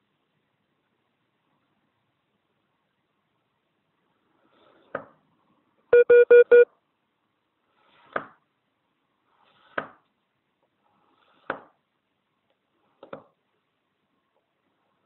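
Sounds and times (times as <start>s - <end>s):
short electronic beeps: 6.0s - 6.7s.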